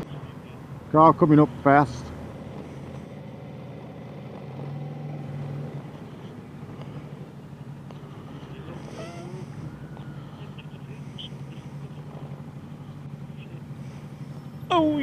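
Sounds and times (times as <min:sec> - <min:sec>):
faint distant voices: 0:05.7 - 0:15.0.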